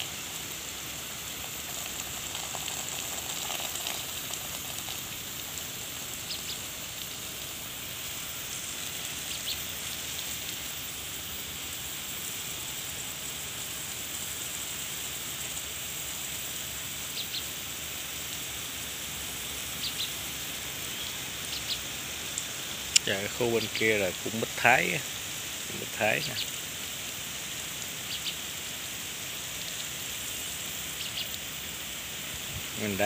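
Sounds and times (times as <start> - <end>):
hose water spraying on soil: 0.0 - 33.0
faint high ticks: 1.4 - 5.7, 21.6 - 23.1, 31.0 - 31.5.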